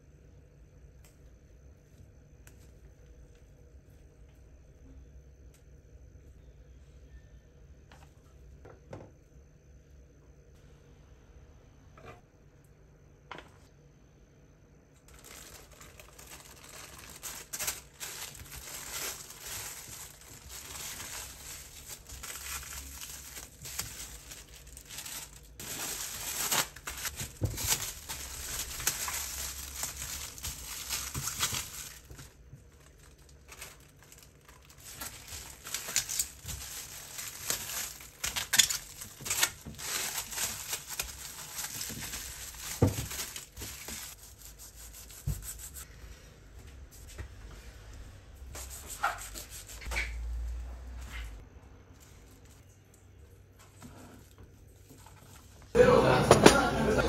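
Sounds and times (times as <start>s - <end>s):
plastic wrap crinkling: 15.1s - 45.8s.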